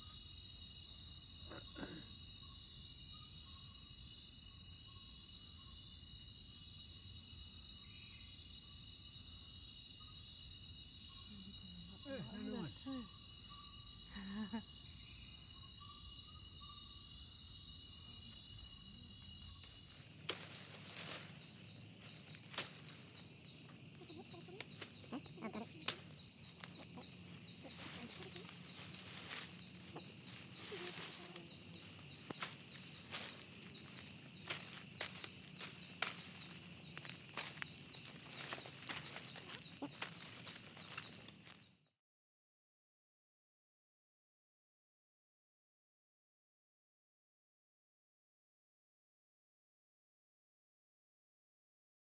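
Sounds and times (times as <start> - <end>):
insects buzzing: 0.0 - 41.9
footsteps through leaf litter: 27.6 - 41.6.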